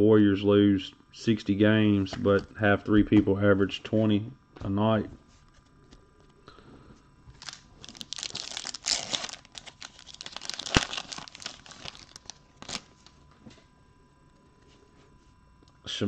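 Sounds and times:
foil wrapper tearing and crinkling: 7.4s - 13.1s.

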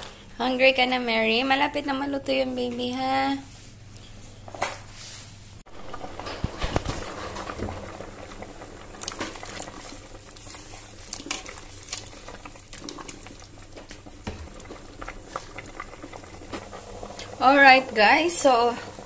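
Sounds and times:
soup boiling and bubbling: 5.6s - 19.0s.

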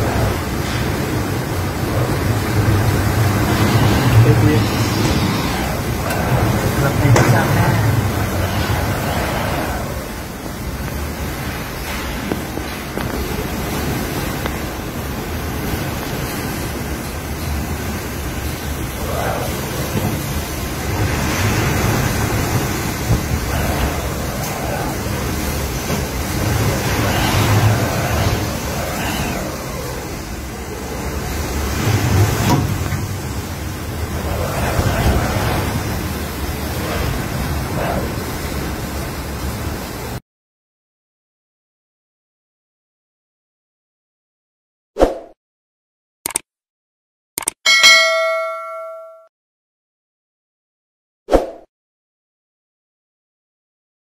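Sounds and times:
wind buffeting microphone: 0.0s - 39.2s
howling wind through palm trees: 0.0s - 40.2s.

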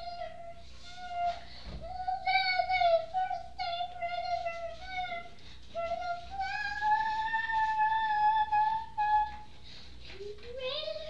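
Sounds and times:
child singing wordlessly: 0.0s - 11.0s.

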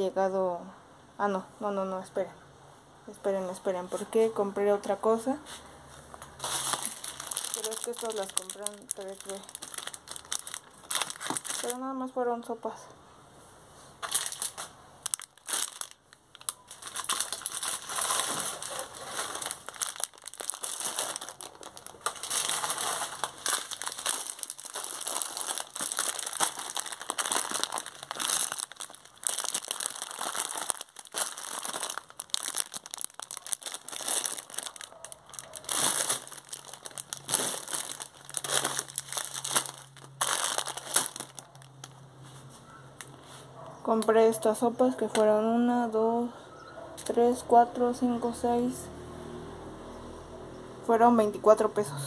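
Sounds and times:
plastic packets crinkling: 6.2s - 12.1s, 14.0s - 42.0s.

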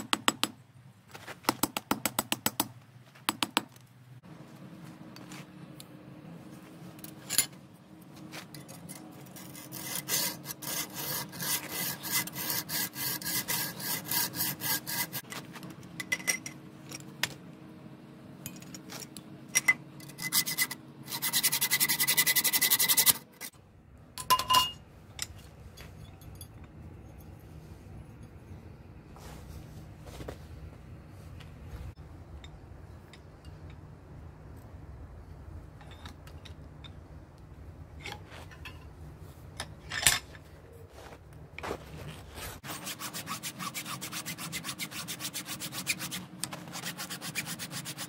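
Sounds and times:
hacksaw cutting steel: 9.3s - 15.3s, 20.0s - 23.6s, 42.6s - 48.0s
metallic clink: 24.2s - 27.4s.

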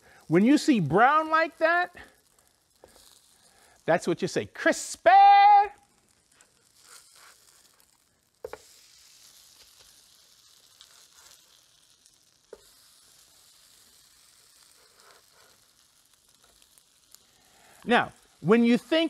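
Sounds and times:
potato pancakes sizzling in oil: 0.0s - 19.0s
spatula clicking on griddle: 6.2s - 18.9s.

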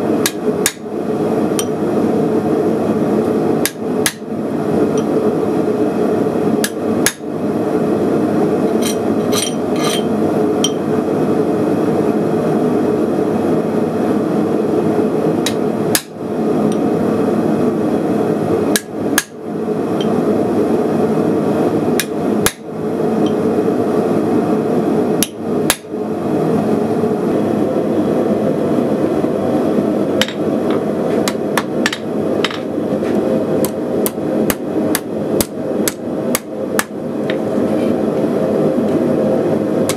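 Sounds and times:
hammer striking hot steel on anvil: 0.2s - 0.9s, 1.6s - 1.8s, 3.6s - 4.3s, 6.6s - 7.3s, 15.4s - 16.8s, 18.7s - 19.4s, 22.0s - 22.6s, 25.2s - 25.9s, 30.2s - 30.4s, 31.2s - 32.7s, 33.6s - 37.4s.

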